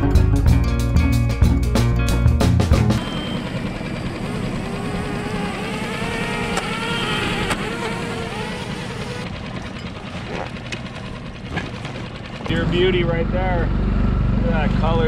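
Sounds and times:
background music: 0.0s - 3.1s
small motor running: 3.0s - 12.9s.

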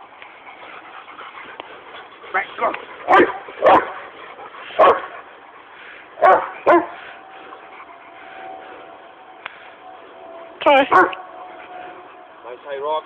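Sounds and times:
dog barking: 3.0s - 4.0s, 4.8s - 5.2s, 6.2s - 7.0s, 10.9s - 11.2s.

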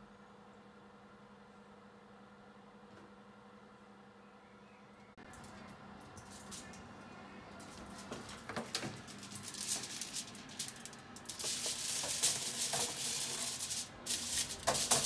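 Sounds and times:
aluminium foil crinkling: 5.2s - 6.9s, 7.5s - 15.0s.

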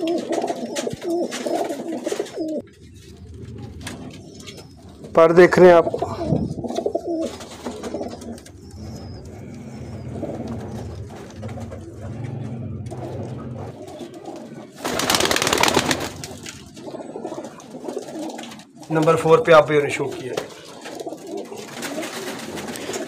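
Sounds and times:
pigeons cooing: 0.0s - 23.0s
loud rustling noise: 9.2s - 16.8s, 20.1s - 23.0s.

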